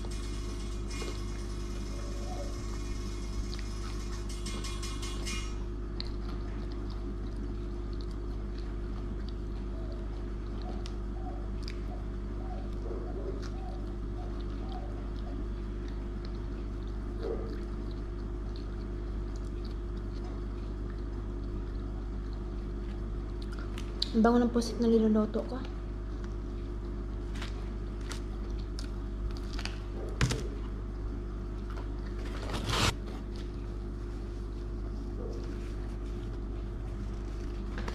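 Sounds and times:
low electrical hum: 0.0s - 37.9s
chewing and mouth clicks: 5.9s - 24.2s, 28.0s - 29.8s.

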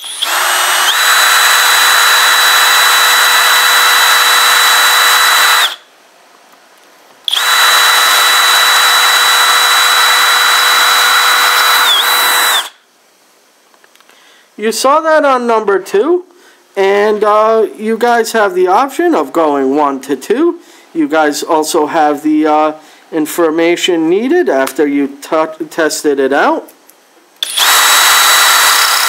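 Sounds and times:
hammer drill boring into brick: 0.0s - 5.8s, 7.3s - 12.8s, 27.4s - 29.0s.

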